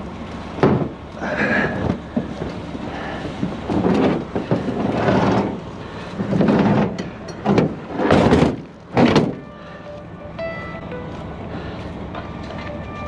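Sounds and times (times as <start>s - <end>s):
wire cables scraping and rattling: 1.3s - 9.4s.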